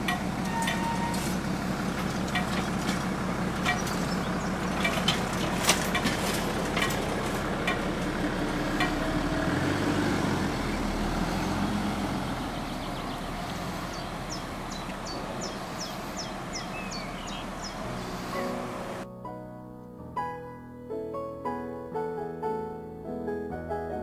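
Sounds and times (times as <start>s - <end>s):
car passing by: 5.5s - 19.0s.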